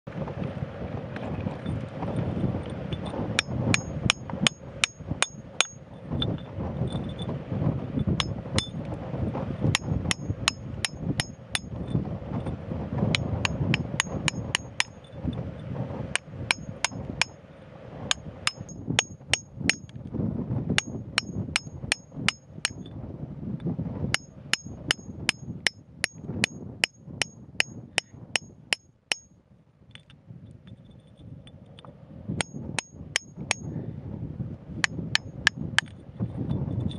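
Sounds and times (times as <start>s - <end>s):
hammer striking chisel into rock: 3.4s - 5.8s, 8.1s - 8.8s, 9.7s - 11.8s, 13.1s - 15.0s, 16.2s - 17.3s, 18.1s - 20.0s, 20.8s - 22.9s, 24.2s - 29.3s, 32.4s - 33.7s, 34.8s - 35.9s.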